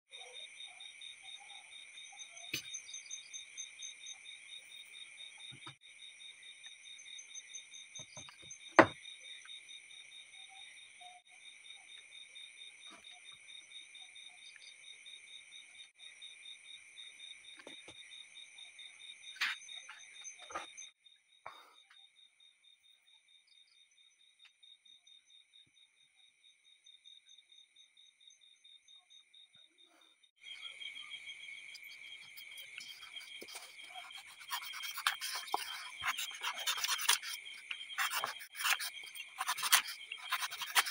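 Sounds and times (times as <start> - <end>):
objects knocking on a table: 8.0 - 9.0
crickets chirping: 21.8 - 40.9.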